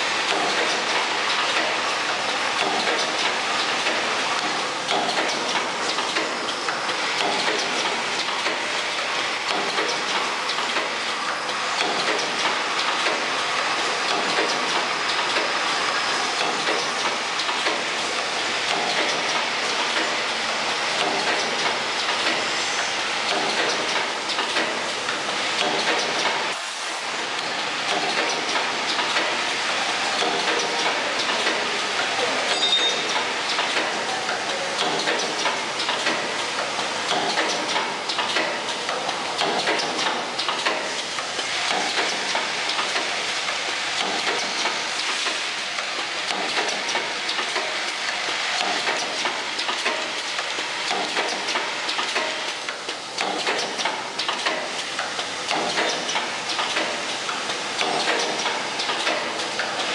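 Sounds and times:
rapid machine clicking: 33.1s - 59.9s.

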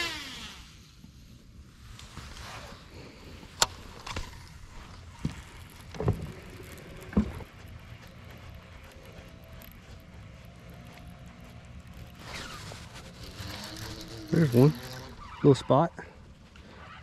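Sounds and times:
fishing reel clicking: 11.9s - 15.2s.

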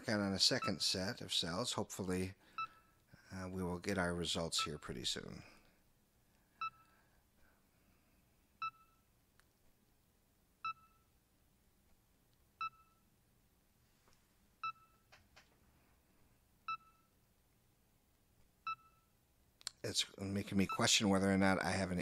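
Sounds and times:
short electronic beeps: 18.7s - 19.1s.

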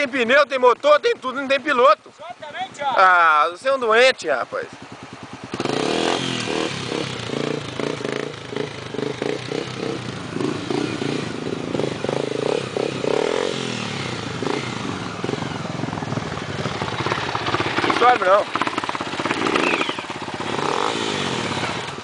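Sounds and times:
dirt bike engine revving: 4.6s - 22.0s.

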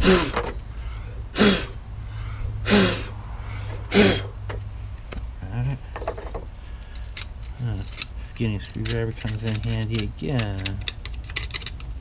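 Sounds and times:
steady low hum: 0.0s - 12.0s
person blowing sharply: 1.3s - 4.4s.

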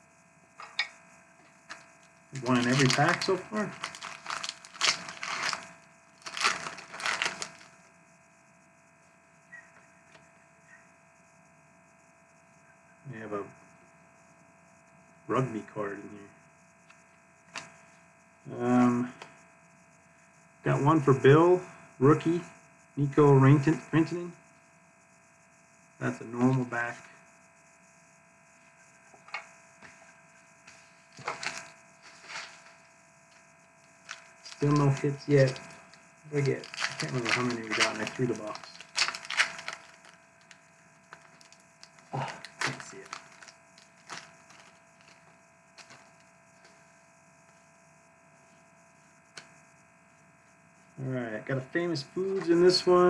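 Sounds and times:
steady electrical hum: 0.0s - 53.0s
foil wrapper crinkling: 1.7s - 7.8s, 31.1s - 32.8s, 33.9s - 46.3s
trading cards tapping and rustling: 1.7s - 7.8s, 31.2s - 32.7s, 34.0s - 45.2s, 45.8s - 46.2s.

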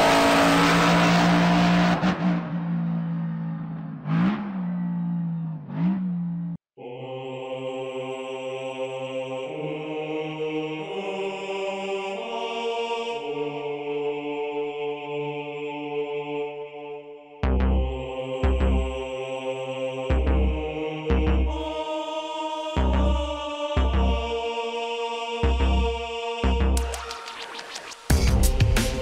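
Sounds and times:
chanting vocal drone: 0.0s - 2.4s, 6.8s - 29.0s
car engine revving: 0.0s - 6.6s.

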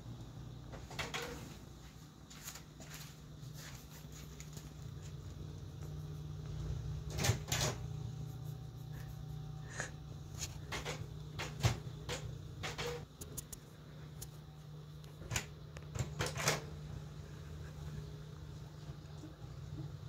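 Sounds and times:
printer clunks and clicks: 0.7s - 1.4s, 7.1s - 7.9s, 10.6s - 13.1s, 15.2s - 16.8s
low hum: 4.4s - 15.2s.

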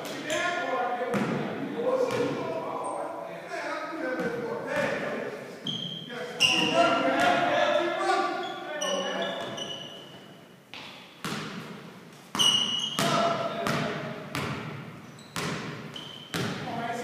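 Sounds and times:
basketball bouncing on wooden floor: 10.8s - 16.7s.

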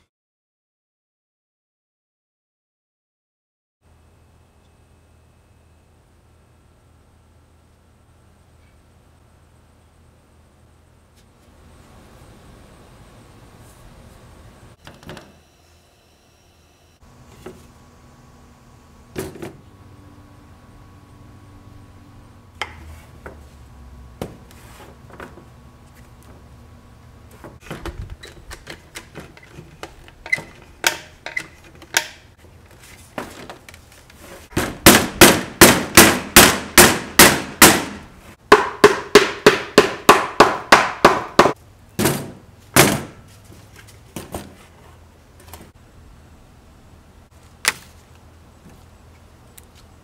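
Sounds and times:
rapid knocking on wood: 38.5s - 41.6s.

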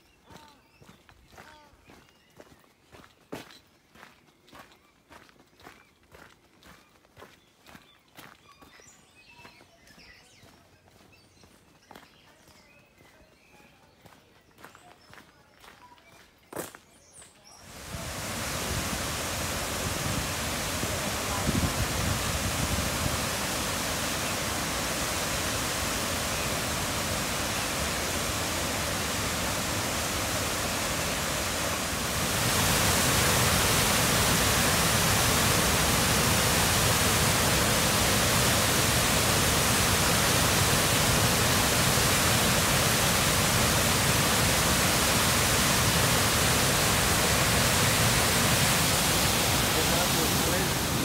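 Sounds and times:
waterfall rushing: 17.7s - 51.0s.

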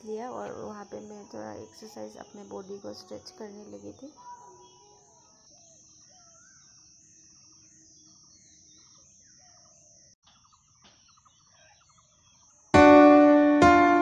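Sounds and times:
faint bird chirps: 0.0s - 12.8s.

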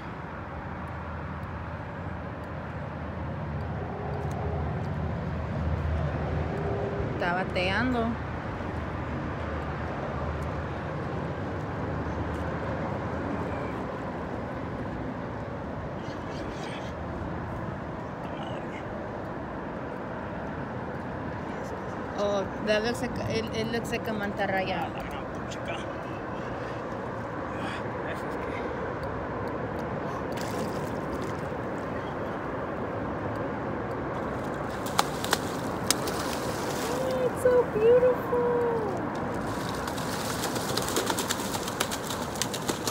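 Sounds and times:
distant traffic rumble: 0.0s - 42.9s
sharp slaps on water: 29.4s - 31.6s, 33.9s - 37.2s, 39.1s - 42.9s
fish splashing in water: 30.2s - 31.8s, 34.1s - 37.6s, 39.1s - 42.9s.

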